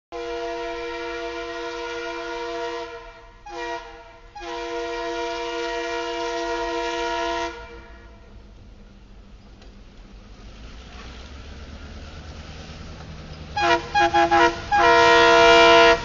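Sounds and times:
locomotive air horn blasts: 0:00.1 - 0:08.3, 0:13.5 - 0:16.0
locomotive low rumble: 0:00.1 - 0:16.0.

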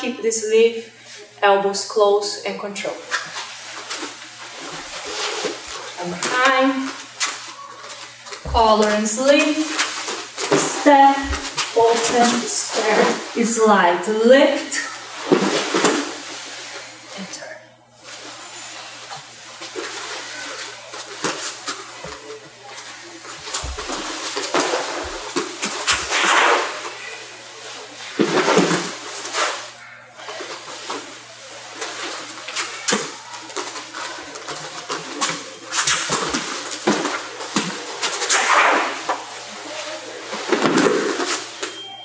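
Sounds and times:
cloth rustling and scuffing: 0:03.1 - 0:13.6.

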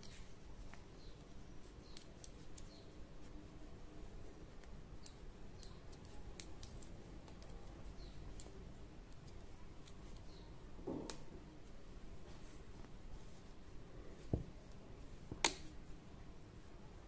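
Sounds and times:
knitting needles clicking: 0:00.0 - 0:03.4, 0:04.1 - 0:11.3, 0:14.2 - 0:15.8.

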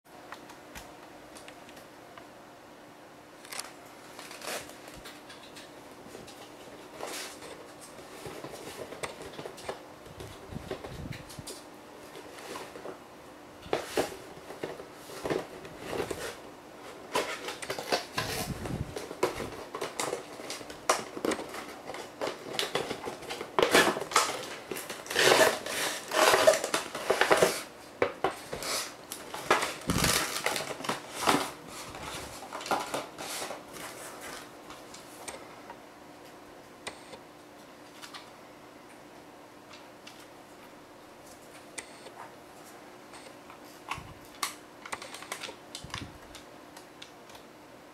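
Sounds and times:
plastic packaging rustling: 0:03.4 - 0:13.0, 0:13.6 - 0:35.3.

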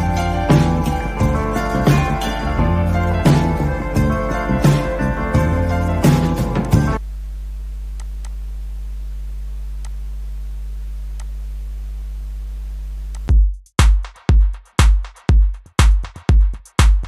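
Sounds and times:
steady low hum: 0:06.7 - 0:13.3
faint clicks: 0:07.9 - 0:08.4, 0:09.8 - 0:10.0, 0:11.1 - 0:11.4.

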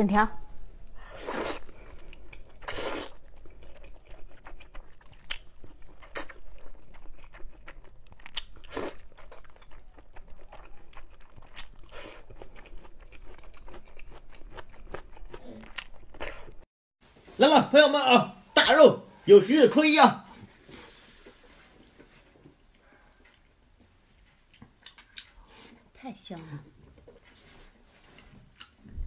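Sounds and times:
chewing with mouth clicks: 0:00.5 - 0:16.6, 0:22.0 - 0:29.0
slurping noodles: 0:01.0 - 0:05.2.

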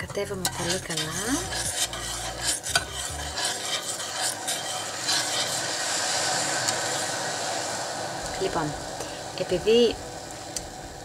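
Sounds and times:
metal ladle stirring in pot: 0:00.0 - 0:07.1.

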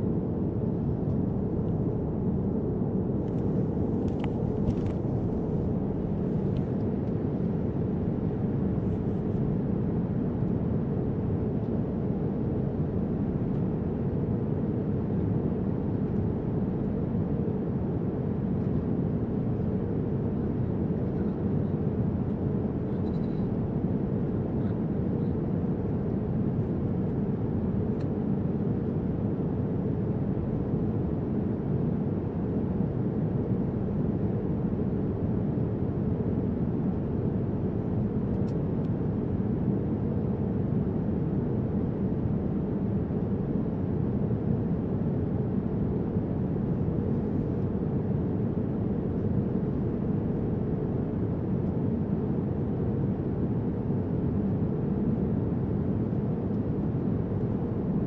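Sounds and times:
airliner cabin engine roar: 0:00.0 - 0:58.0.

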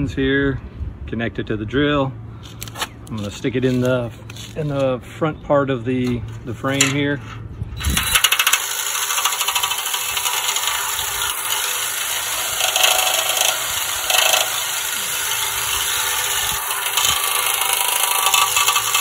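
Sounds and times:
drill spinning: 0:07.8 - 0:19.0.

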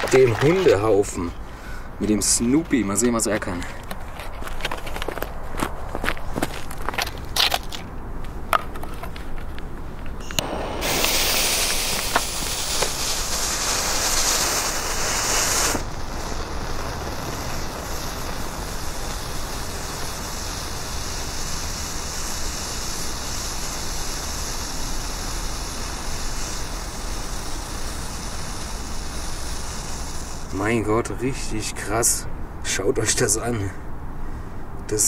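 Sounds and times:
firework hissing: 0:10.2 - 0:31.9.

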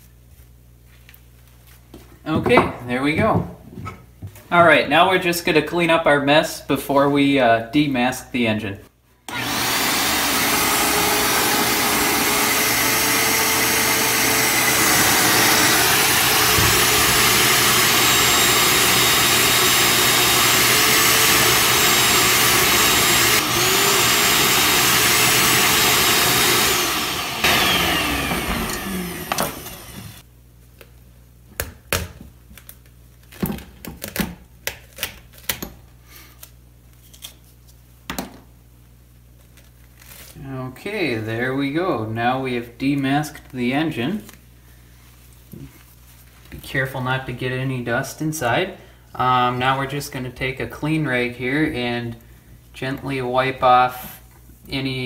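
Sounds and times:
vacuum winding down whine: 0:09.3 - 0:30.2
shop vacuum running: 0:09.3 - 0:30.3.

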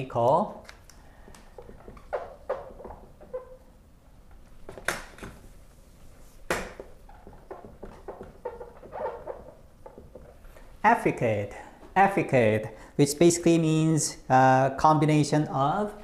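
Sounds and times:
marker squeaking on whiteboard: 0:01.5 - 0:03.8, 0:06.3 - 0:10.7.

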